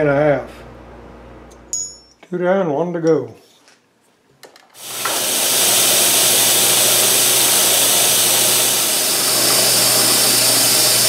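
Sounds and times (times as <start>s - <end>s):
air nozzle hissing: 4.8s - 11.0s
milling machine humming: 4.8s - 11.0s.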